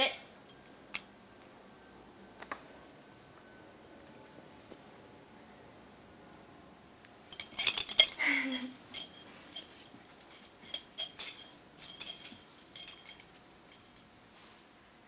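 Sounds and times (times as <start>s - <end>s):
metal dog tags jingling: 7.3s - 14.1s.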